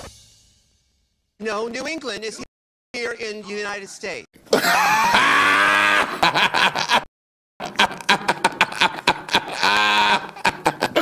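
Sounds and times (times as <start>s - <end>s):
person laughing hard: 4.5s - 11.0s.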